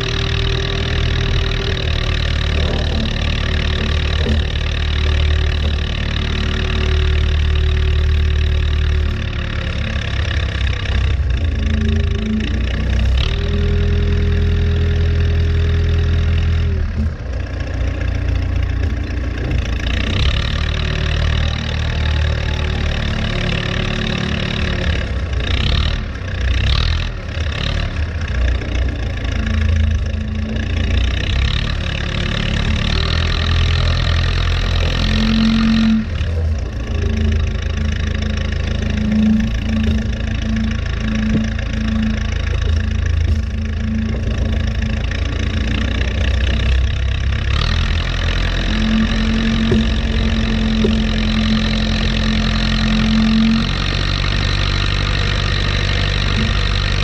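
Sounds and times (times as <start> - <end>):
diesel engine revving: 0.0 - 57.0
steady whine: 10.7 - 26.3, 28.1 - 57.0.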